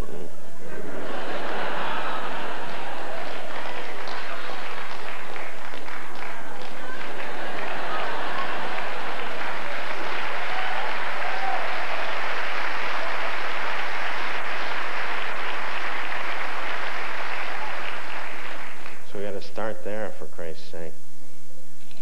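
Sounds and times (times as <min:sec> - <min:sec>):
audience laughter: 0:00.6 - 0:05.6, 0:06.2 - 0:10.3
audience applauding: 0:00.8 - 0:20.0.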